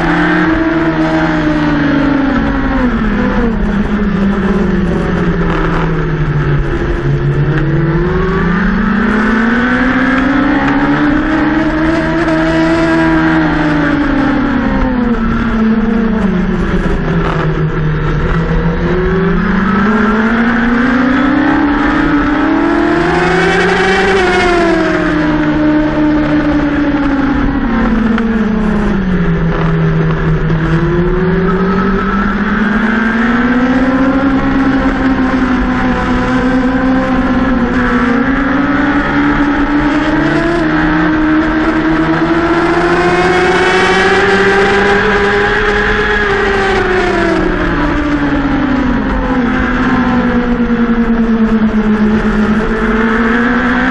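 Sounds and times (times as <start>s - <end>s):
racing motorcycle engine: 0.0s - 53.9s.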